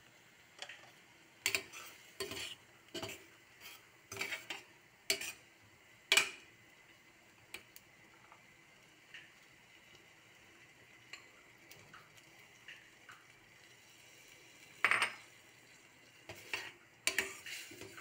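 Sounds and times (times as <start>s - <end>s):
spoon scraping a metal pan: 1.4s - 5.5s, 16.3s - 18.0s.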